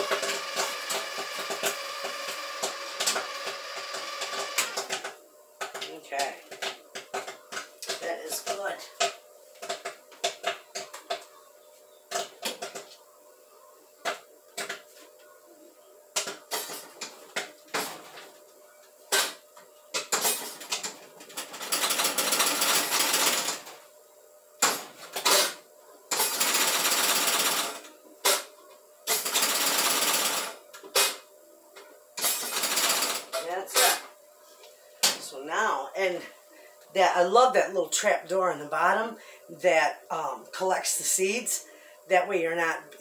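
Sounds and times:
popcorn popping: 0:00.0 - 0:11.4, 0:24.6 - 0:31.2.

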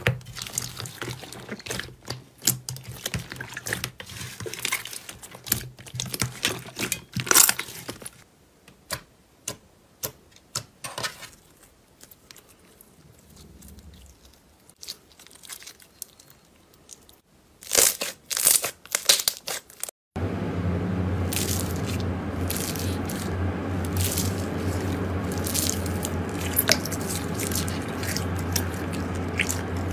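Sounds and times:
slime crackling: 0:21.3 - 0:29.9.

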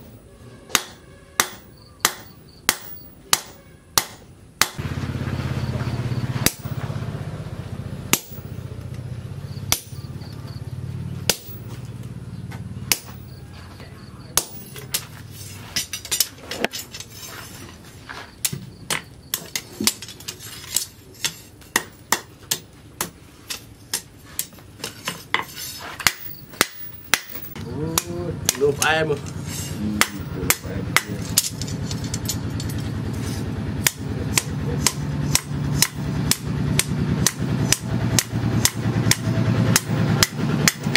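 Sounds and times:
low steady hum: 0:00.0 - 0:40.9
hammer striking metal on anvil: 0:00.7 - 0:04.8, 0:06.4 - 0:06.8, 0:08.1 - 0:08.6, 0:09.7 - 0:10.3, 0:11.3 - 0:11.8, 0:12.9 - 0:13.4, 0:14.4 - 0:15.1, 0:21.2 - 0:24.6, 0:25.4 - 0:32.9, 0:33.8 - 0:40.9.

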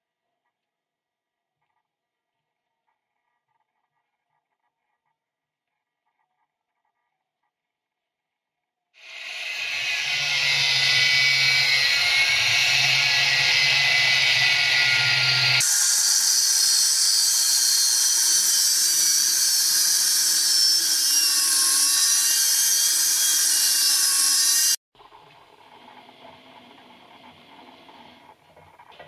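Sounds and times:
angle grinder cutting steel: 0:09.0 - 0:24.8.

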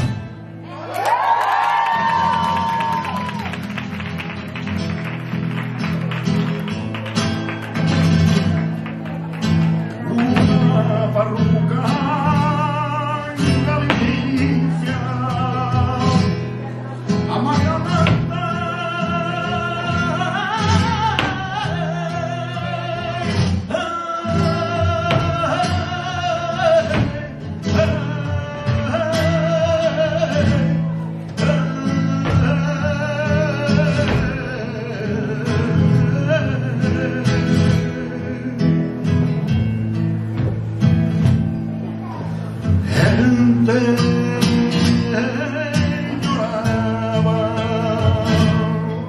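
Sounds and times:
guitar: 0:00.0 - 0:49.0
person singing: 0:10.0 - 0:39.2, 0:42.1 - 0:49.0.

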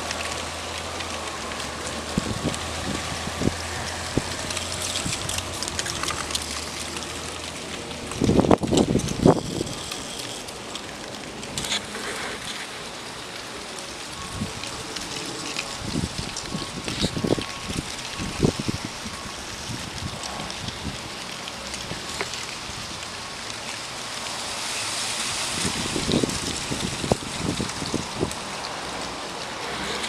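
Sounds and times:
street traffic: 0:00.0 - 0:30.0
wind blowing across microphone: 0:02.0 - 0:06.4, 0:07.9 - 0:12.7, 0:14.2 - 0:23.0, 0:25.2 - 0:30.0.

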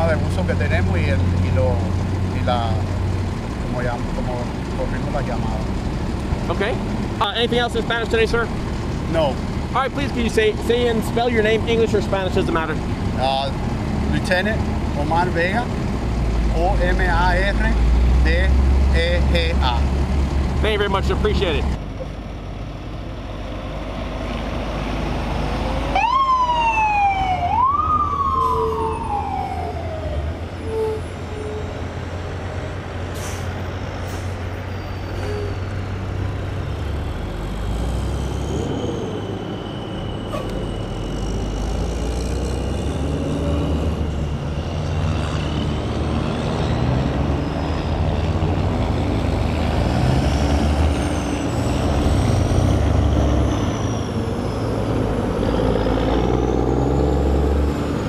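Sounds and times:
traffic rumble: 0:00.0 - 0:58.0
siren whoops: 0:25.9 - 0:31.7.

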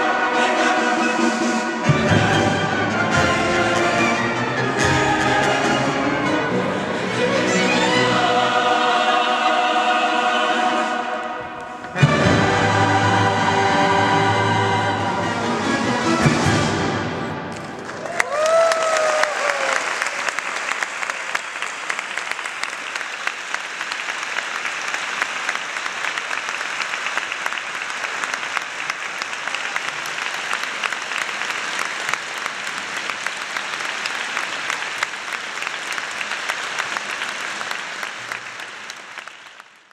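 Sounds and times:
audience applauding: 0:17.5 - 0:39.9.

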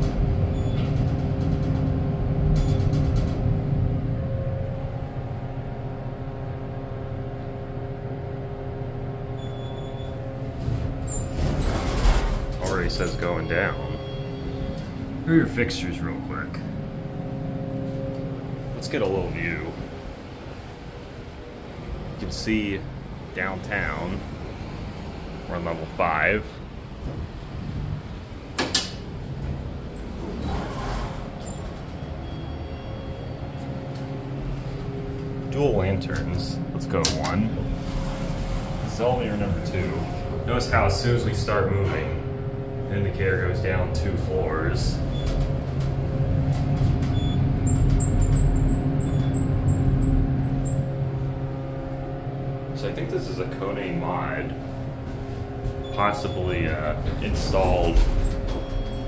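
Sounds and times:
elevator car rumbling: 0:00.0 - 0:59.0
motor hum: 0:14.0 - 0:22.2, 0:27.0 - 0:59.0
faint high beep: 0:32.2 - 0:33.6.

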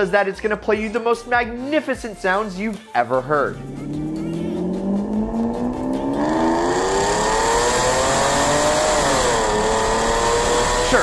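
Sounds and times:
car engine accelerating hard: 0:03.4 - 0:11.0.

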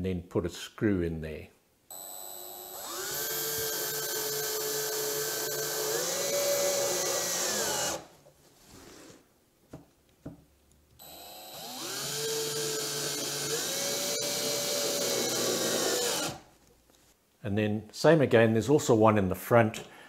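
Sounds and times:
cordless drill whining: 0:01.9 - 0:08.1, 0:11.0 - 0:16.5.

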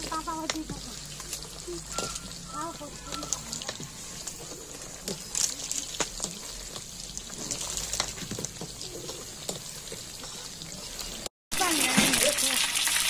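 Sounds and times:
thick batter bubbling and slopping: 0:00.0 - 0:13.0
metal ladle knocking and scraping pot: 0:01.9 - 0:05.3.

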